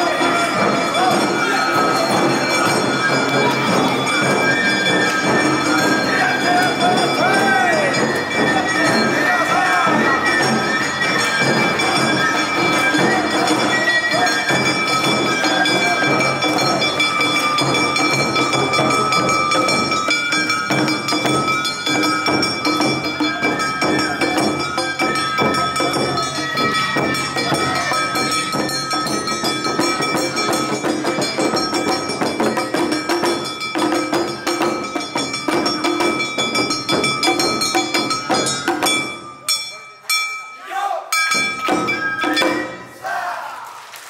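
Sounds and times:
taiko drums: 0:00.0 - 0:39.7, 0:41.1 - 0:43.0
shamisen: 0:00.0 - 0:43.4.

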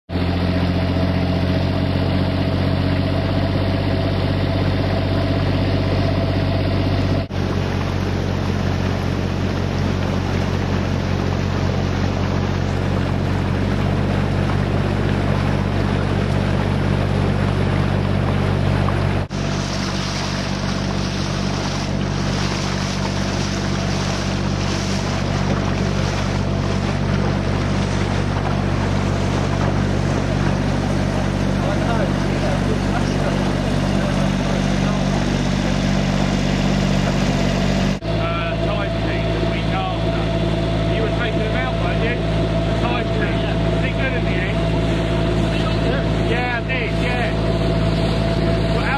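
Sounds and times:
boat engine humming: 0:00.0 - 0:48.9
wind: 0:00.0 - 0:48.9
water hissing: 0:19.3 - 0:38.0.

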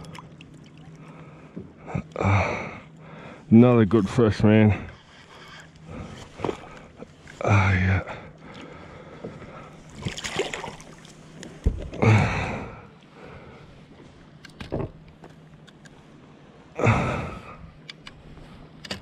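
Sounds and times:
fish splashing into water: 0:10.0 - 0:11.1.

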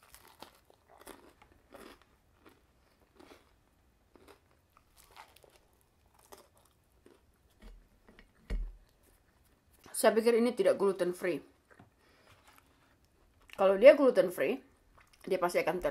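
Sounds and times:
chewing toasted bread: 0:00.0 - 0:07.8, 0:11.6 - 0:13.7, 0:14.8 - 0:15.3.

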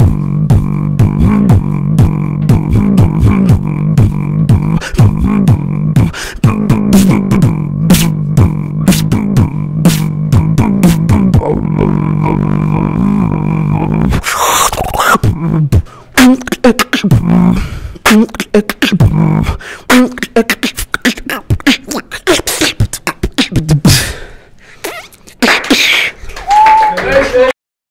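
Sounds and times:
droning bass hum: 0:00.0 - 0:14.2
beatboxing into a microphone: 0:00.0 - 0:26.3.

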